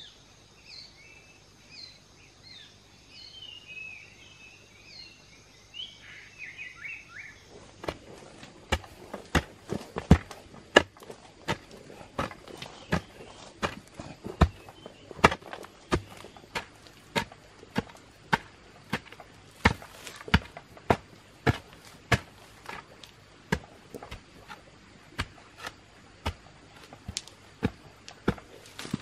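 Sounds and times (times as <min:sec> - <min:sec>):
digging tool chopping stony soil: 0:07.8 - 0:29.0.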